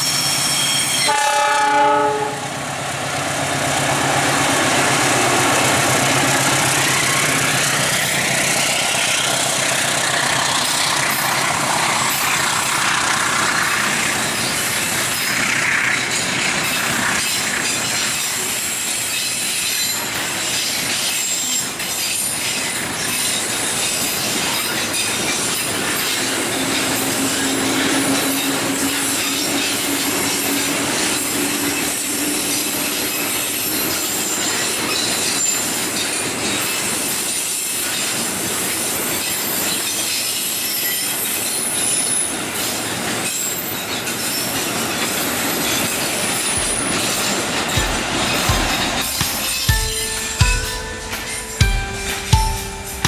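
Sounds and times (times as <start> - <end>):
high wheel squeal: 0.0 - 1.9, 10.0 - 50.0
train wheels rumbling on rails: 0.0 - 53.0.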